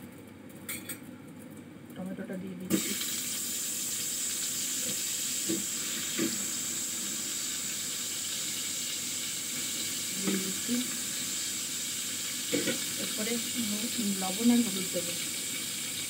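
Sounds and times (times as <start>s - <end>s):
vegetables sizzling in oil: 2.7s - 16.0s
spatula knocking pan: 12.5s - 12.9s.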